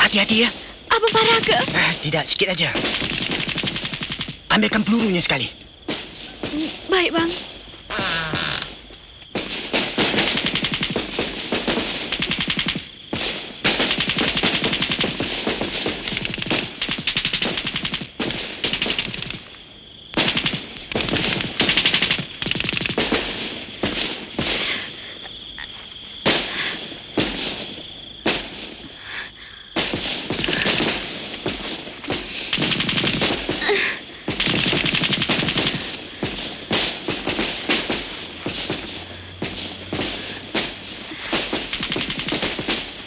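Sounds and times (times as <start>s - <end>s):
rapid gunfire bursts: 0.0s - 5.2s, 9.4s - 19.5s, 20.2s - 24.6s, 29.8s - 43.0s.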